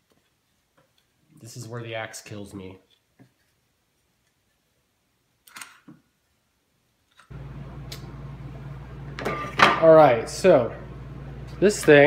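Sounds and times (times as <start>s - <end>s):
steady low hum: 7.3s - 12.0s.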